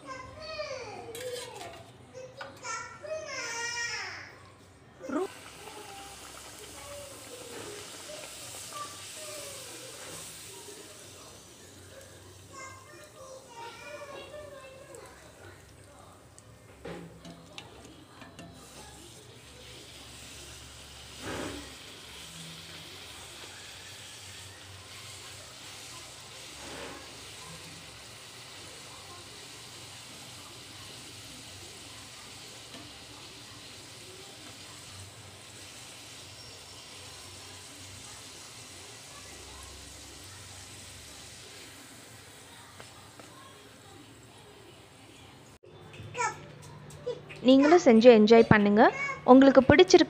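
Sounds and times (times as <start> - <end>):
dough deep-frying in hot oil: 2.6 - 4.4, 5.0 - 45.7.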